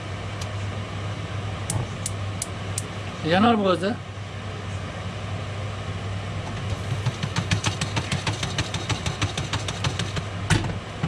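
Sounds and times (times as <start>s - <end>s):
steady low hum: 0.0s - 11.0s
popcorn popping in a pot: 6.5s - 10.5s.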